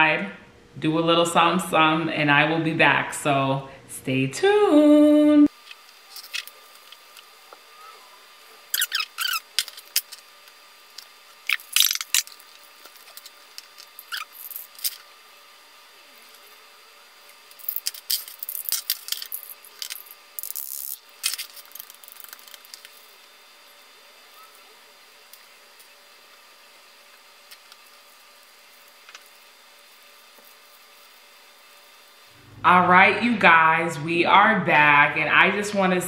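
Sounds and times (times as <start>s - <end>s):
metal grinder squeaks and scrapes: 8.7s - 10.1s, 14.0s - 14.9s.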